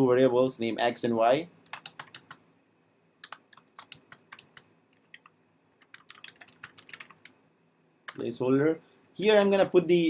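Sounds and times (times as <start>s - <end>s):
typing on computer keyboard: 1.7s - 2.4s, 3.2s - 7.4s.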